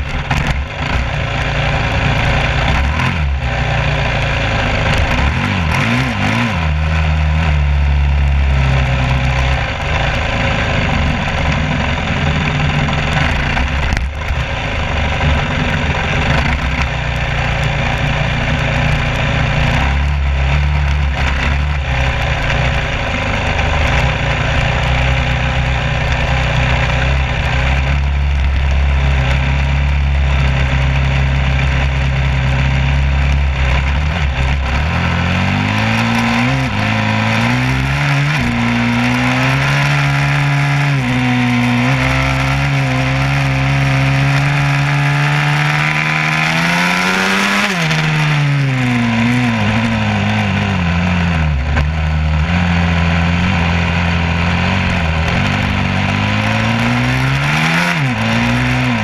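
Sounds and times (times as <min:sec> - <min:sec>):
engine running: 0:00.0 - 0:59.0.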